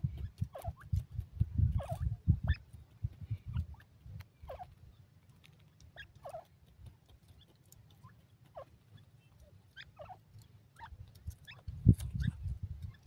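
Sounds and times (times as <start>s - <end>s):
bird chirping calls: 5.9s - 13.0s.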